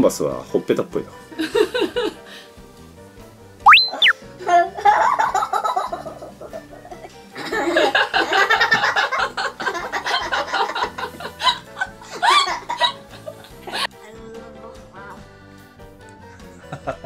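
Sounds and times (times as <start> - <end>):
background music: 0.0 - 17.0
woman and boy laughing: 7.4 - 13.9.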